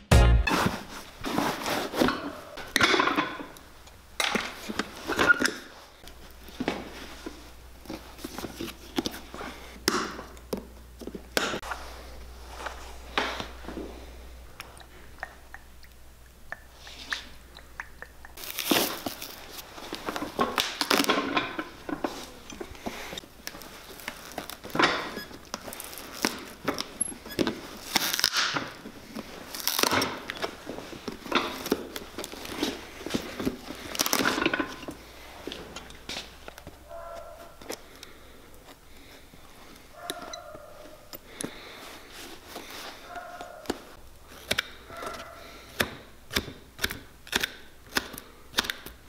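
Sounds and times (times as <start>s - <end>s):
leather sole tearing: 18.4s - 21.4s, 27.5s - 28.8s, 29.4s - 34.4s
pincers pulling nails: 44.4s - 49.0s.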